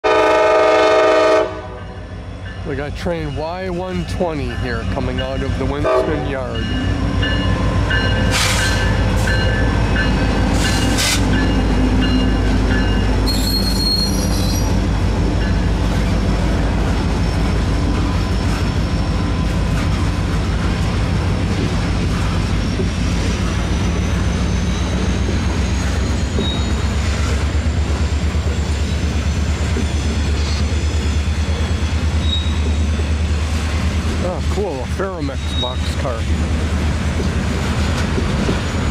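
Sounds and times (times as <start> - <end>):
diesel locomotive engine: 0.0 - 38.9
train wheel squeal: 6.5 - 20.1, 22.1 - 33.8, 35.2 - 36.5, 37.4 - 38.9.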